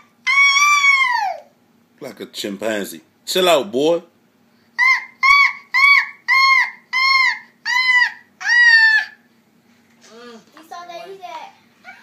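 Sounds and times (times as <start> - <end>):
toddler shrieking: 0.0 - 1.5, 4.8 - 9.3.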